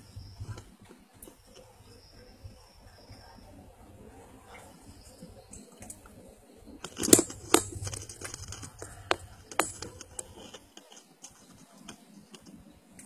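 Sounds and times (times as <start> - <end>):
sharp clicks and scrapes: 6.8 - 13.0.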